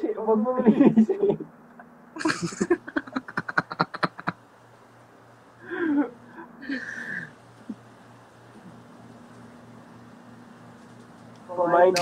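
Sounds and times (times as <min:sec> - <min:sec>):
man laughing hard: 0:02.2 - 0:04.4.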